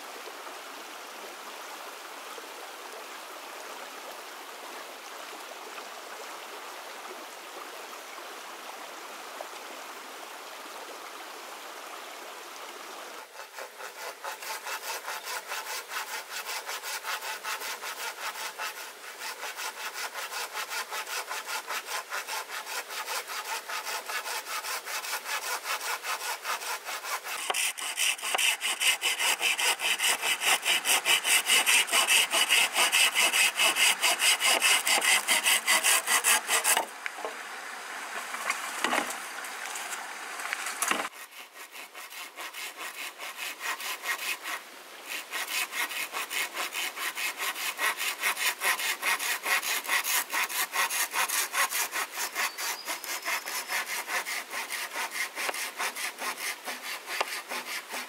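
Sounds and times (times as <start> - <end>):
stream flowing: 0.0 - 58.0
hand saw cutting bamboo: 13.2 - 37.4, 38.4 - 39.2, 40.8 - 58.0.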